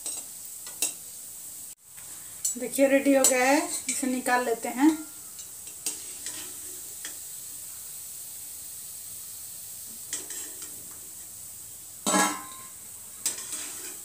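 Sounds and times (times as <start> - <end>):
hot oil sizzling: 0.0 - 14.0
metal skimmer scraping a pan: 4.9 - 6.9, 10.1 - 10.8, 12.0 - 14.0
ringing metal clank: 12.1 - 12.8.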